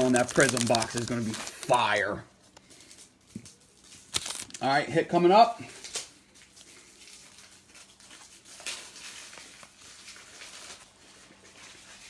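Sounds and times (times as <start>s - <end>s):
trading cards rustling and ticking: 0.0s - 4.6s.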